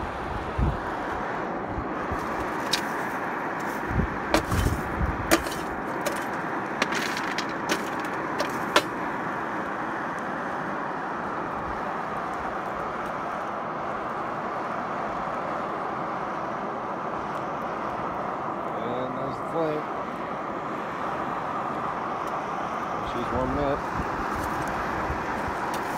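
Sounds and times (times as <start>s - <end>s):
coal clicking and knocking: 2.1s - 9.0s.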